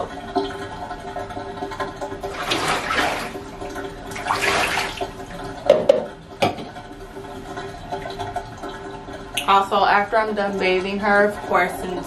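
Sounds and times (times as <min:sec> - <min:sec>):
water splashing on dog: 0:04.1 - 0:05.3.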